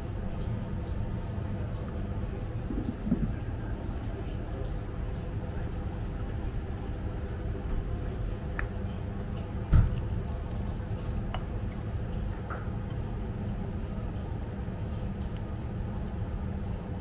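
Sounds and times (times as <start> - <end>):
low room rumble: 0.0 - 17.0.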